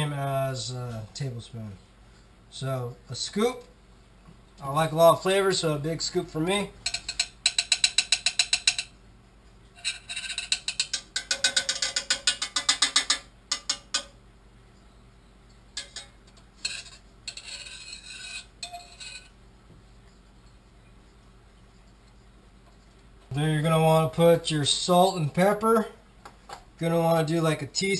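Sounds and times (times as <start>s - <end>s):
metal spoon scraping saucepan: 6.5s - 9.0s, 9.8s - 14.2s, 15.7s - 19.4s.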